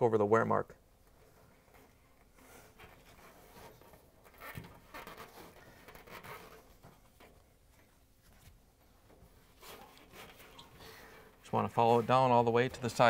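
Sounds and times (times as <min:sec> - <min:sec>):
screwdriver scraping rubber belt: 0:09.6 - 0:11.4.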